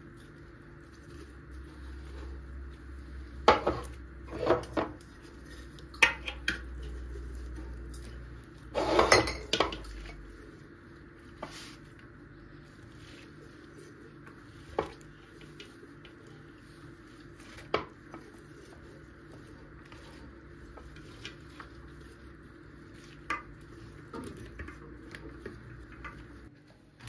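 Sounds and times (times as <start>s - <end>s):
cabbage rustling: 0.0s - 4.3s, 9.9s - 27.0s.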